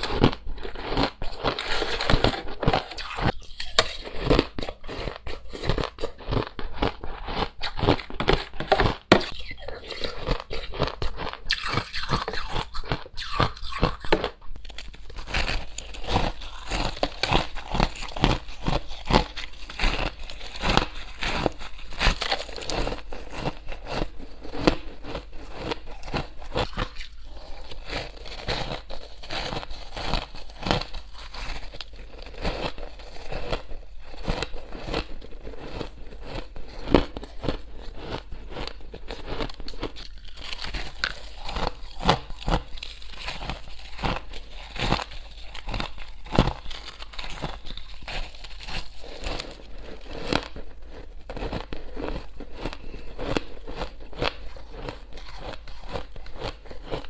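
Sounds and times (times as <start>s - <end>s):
metal spoon scraping ice: 0.0s - 6.5s, 7.2s - 14.2s, 15.1s - 33.4s
ice crunching while chewed: 0.0s - 57.0s.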